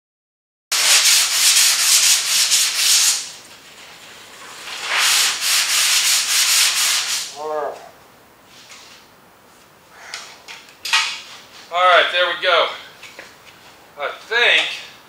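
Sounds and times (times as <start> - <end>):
sandpaper rubbing on metal panel: 0.7 - 7.3.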